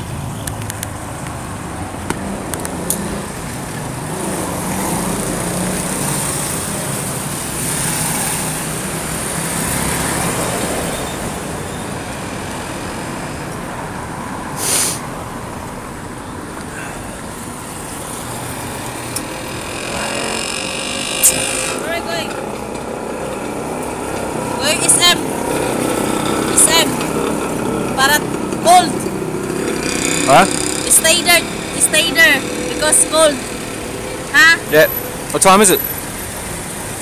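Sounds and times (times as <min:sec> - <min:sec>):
cars and motorbikes passing: 0:00.0 - 0:37.0
vehicle engine hum: 0:00.0 - 0:37.0
brief hiss: 0:14.6 - 0:15.1.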